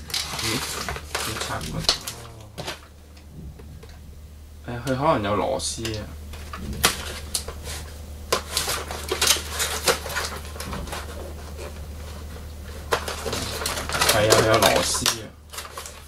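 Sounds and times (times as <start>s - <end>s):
packaging rustling and scraping: 0.0s - 4.0s, 5.8s - 16.0s.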